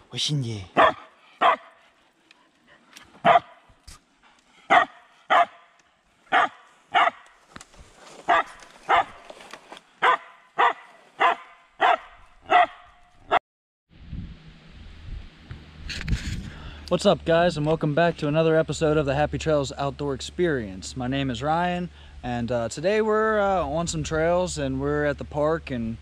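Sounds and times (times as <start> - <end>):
small dog barking sharply: 0.7 - 1.7, 3.2 - 3.6, 4.7 - 5.6, 6.3 - 7.2, 8.3 - 9.2, 10.0 - 12.8.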